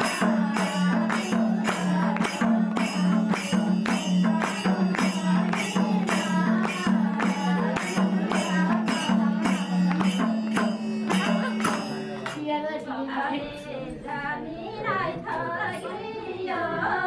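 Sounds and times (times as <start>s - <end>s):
percussion beat: 0.0s - 12.6s
people singing a folk song: 0.0s - 17.0s.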